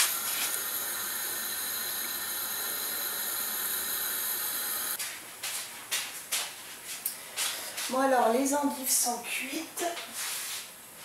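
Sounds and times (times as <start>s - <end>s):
water boiling hard in a saucepan: 0.0s - 5.0s.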